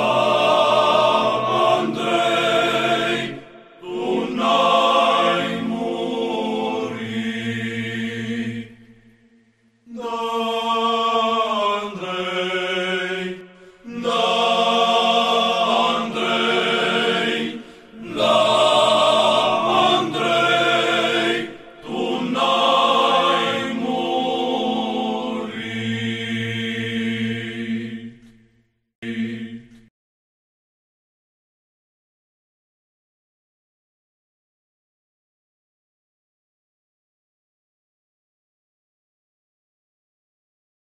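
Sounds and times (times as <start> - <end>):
choir chanting: 0.0 - 29.9.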